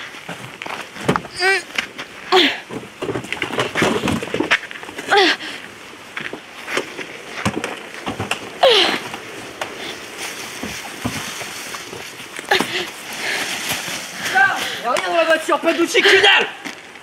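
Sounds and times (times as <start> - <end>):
body dragged across leaves: 3.8 - 16.0.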